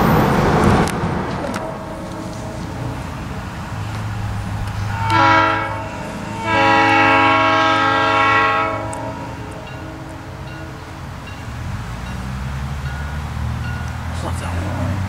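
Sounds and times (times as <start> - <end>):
train low rumble: 0.0 - 15.0
locomotive air horn blasts: 1.5 - 11.4.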